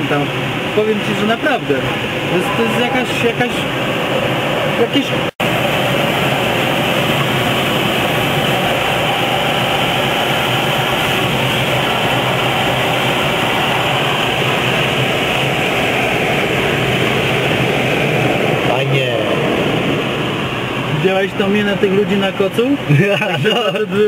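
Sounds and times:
wind rushing over camera: 3.4s - 21.0s.

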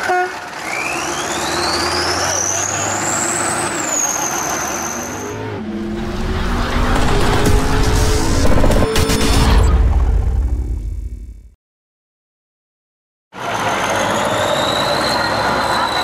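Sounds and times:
heavy vehicle engine whine: 0.0s - 11.4s, 13.4s - 16.0s
deep bass tones: 5.6s - 11.6s.

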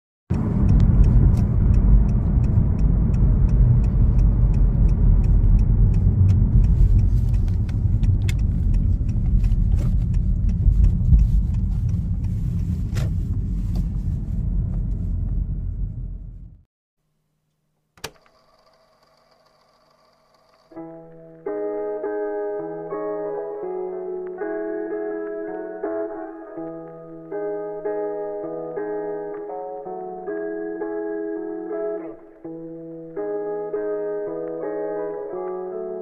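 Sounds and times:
faint regular ticking: 0.3s - 12.7s, 18.1s - 21.3s
tyre and engine rumble in car: 0.3s - 16.7s.

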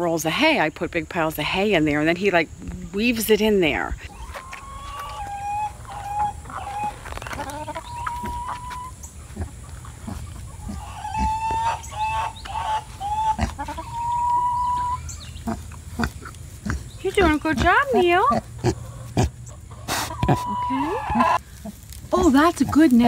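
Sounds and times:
chicken clucking: 4.1s - 16.1s, 17.2s - 21.4s.

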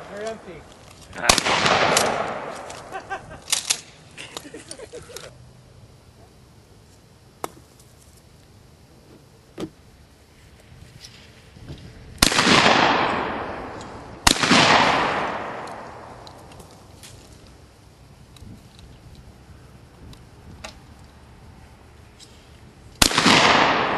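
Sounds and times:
shotgun shots with rolling echo: 1.2s - 2.9s, 12.2s - 16.3s, 23.0s - 23.9s.

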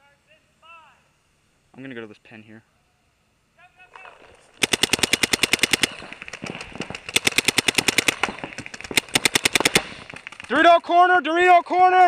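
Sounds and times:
paintball marker firing rapidly: 4.0s - 10.7s.

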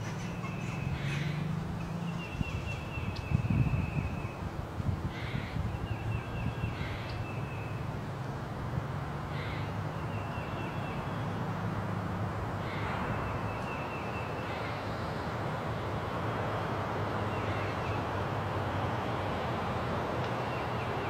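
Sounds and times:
birds calling: 0.0s - 7.9s, 9.3s - 11.5s, 12.6s - 15.2s, 17.2s - 18.9s
steady hiss of woods: 0.0s - 21.0s.

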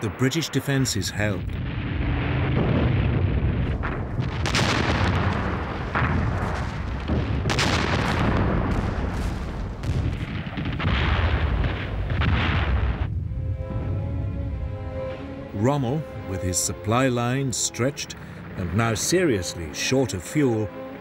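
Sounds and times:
explosions and artillery blasts: 0.0s - 13.4s.

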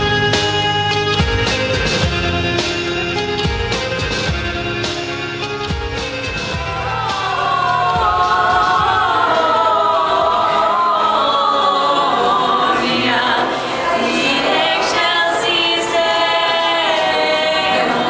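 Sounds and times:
choir singing in harmony: 6.7s - 18.0s.

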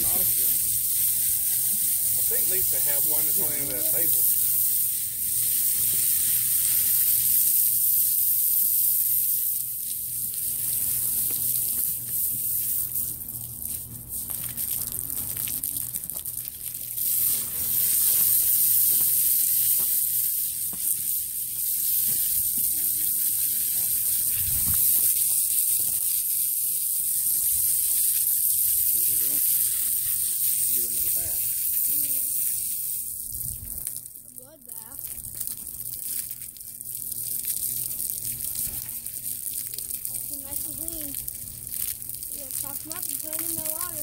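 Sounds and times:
hose water spray hissing: 0.0s - 44.0s
steady low hum: 9.6s - 44.0s.

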